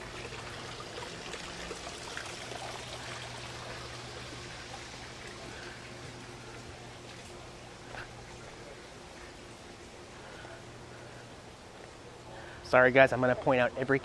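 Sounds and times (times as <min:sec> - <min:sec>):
water trickling: 0:00.0 - 0:08.5
low steady hum: 0:00.0 - 0:14.0.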